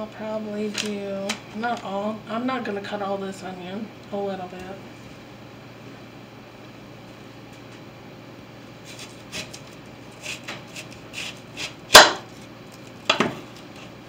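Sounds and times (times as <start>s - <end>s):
knife slicing onion: 8.8s - 12.4s.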